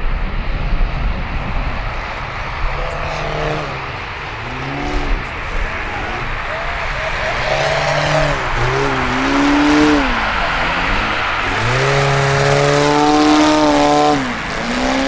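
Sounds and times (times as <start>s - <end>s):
model airplane engine revving: 2.6s - 15.0s.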